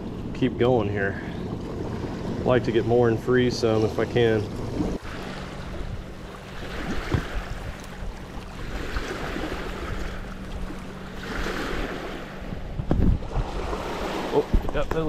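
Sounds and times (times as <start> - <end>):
wind rumbling on microphone: 3.7 - 15.0.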